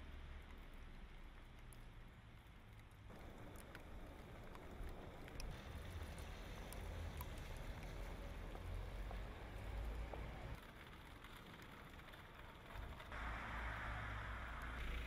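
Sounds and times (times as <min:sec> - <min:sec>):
small ticks: 0:00.4 - 0:09.2
low rumble: 0:12.6 - 0:15.0.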